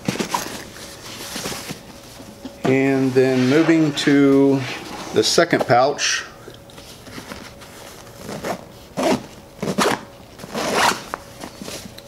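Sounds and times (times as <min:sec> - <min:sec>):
zipper rasping open: 0:08.3 - 0:11.1.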